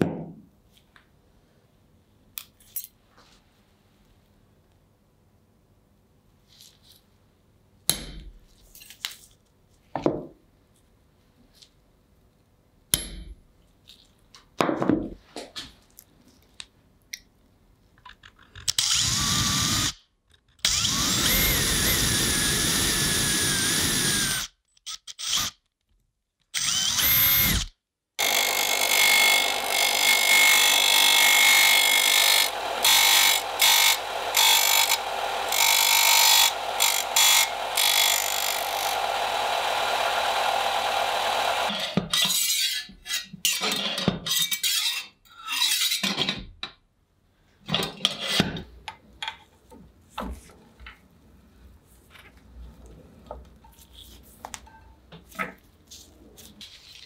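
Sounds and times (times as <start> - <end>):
small power tool running: 20.7 - 24.5, 26.6 - 42.0.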